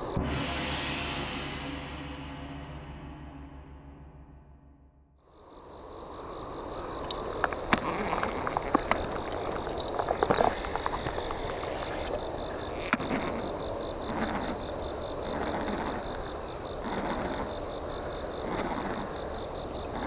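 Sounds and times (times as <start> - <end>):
insect trill: 0.0 - 0.2, 5.2 - 20.0
handling clicks and knocks: 6.7 - 12.2.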